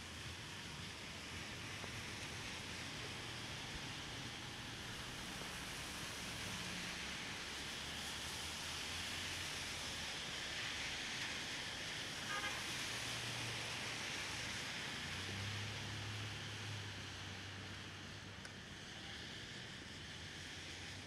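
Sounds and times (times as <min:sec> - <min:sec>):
rain hiss: 0:00.0 - 0:21.0
traffic on wet street: 0:00.0 - 0:21.0
car horn toot: 0:12.3 - 0:12.6
vehicle engine hum passing: 0:12.4 - 0:21.0.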